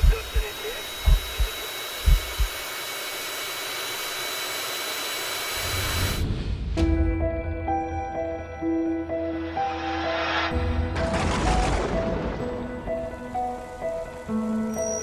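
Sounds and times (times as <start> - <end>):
heavy low thumps: 0.0 - 2.5.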